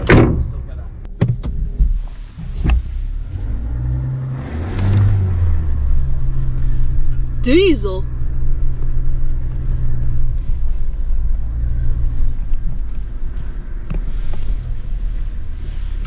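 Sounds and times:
truck engine and road drone: 0.0 - 16.0.

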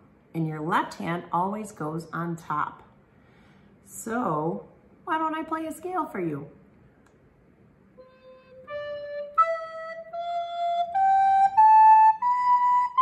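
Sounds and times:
recorder playing a scale: 8.0 - 13.0.

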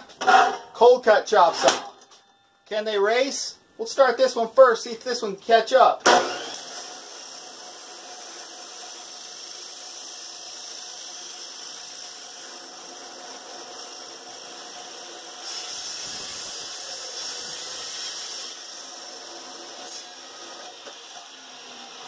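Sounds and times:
cold-cut saw cutting: 6.0 - 22.0
abrasive saw grinding steel pipe: 7.3 - 22.0.

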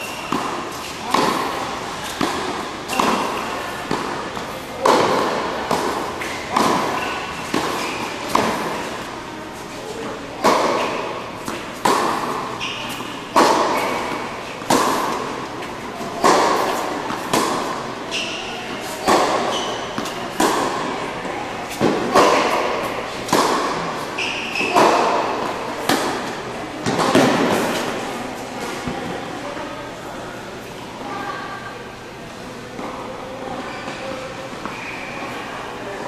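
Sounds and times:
tennis racquet strikes: 0.0 - 28.0
tennis ball bounces: 0.1 - 20.9, 21.6 - 27.9.

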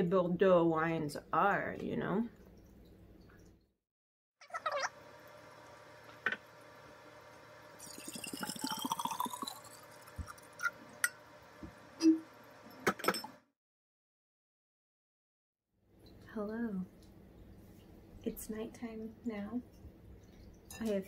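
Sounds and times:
wine glugging from bottle: 7.8 - 10.8.

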